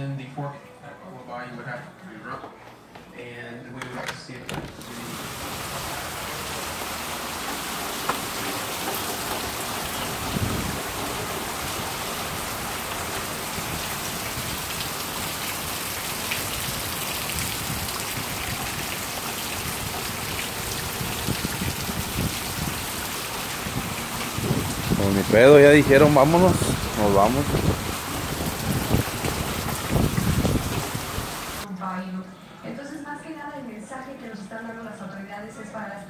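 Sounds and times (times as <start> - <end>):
rain splashing on standing water: 4.8 - 31.6.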